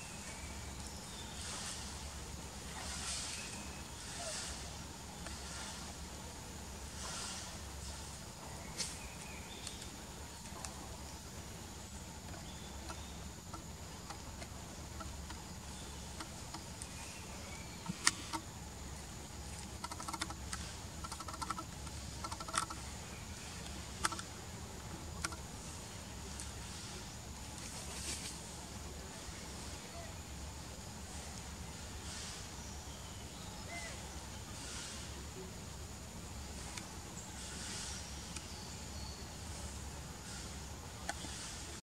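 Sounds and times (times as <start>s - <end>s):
sharp clicks and crackles: 19.6s - 22.9s, 23.6s - 24.3s.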